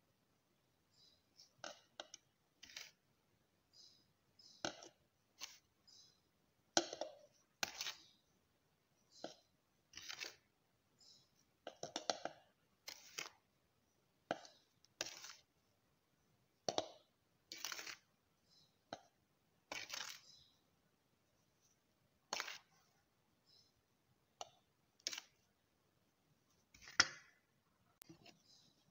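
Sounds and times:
spoon tapping plastic jar: 0:11.6 - 0:12.4, 0:16.6 - 0:17.0.

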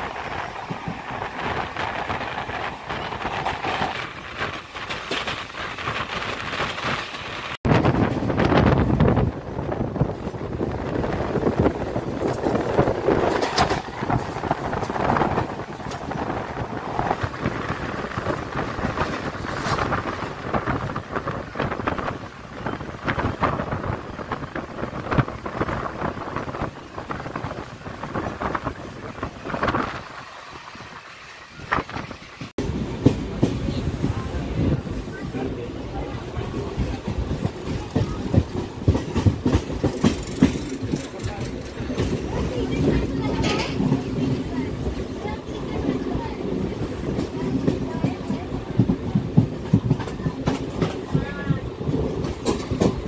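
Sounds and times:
train wheels rattling on rails: 0:00.0 - 0:53.0
wind buffeting microphone: 0:00.0 - 0:53.0.

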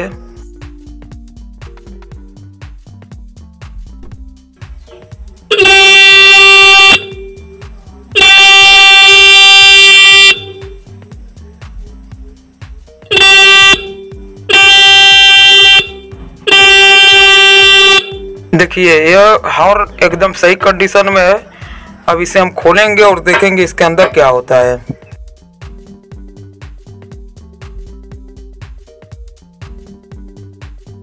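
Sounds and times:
electric horn blasts: 0:05.5 - 0:07.4, 0:08.2 - 0:10.8, 0:13.1 - 0:18.4.

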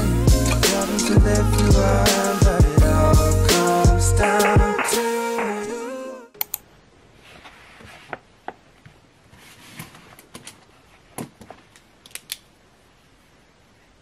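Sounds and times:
paper pages rustling: 0:07.2 - 0:08.2, 0:08.8 - 0:11.7.

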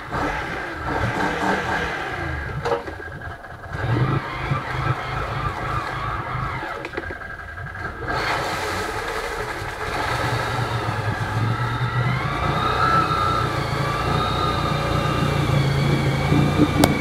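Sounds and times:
quad bike engine revving: 0:00.0 - 0:17.0
water rushing and splashing: 0:08.1 - 0:12.4.

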